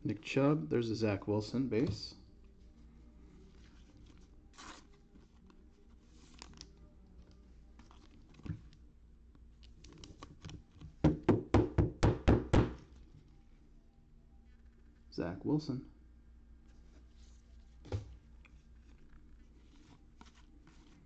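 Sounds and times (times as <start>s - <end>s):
cards rustling: 2.7s - 8.9s, 9.6s - 11.0s, 16.8s - 21.0s
knock on tabletop: 11.0s - 12.8s.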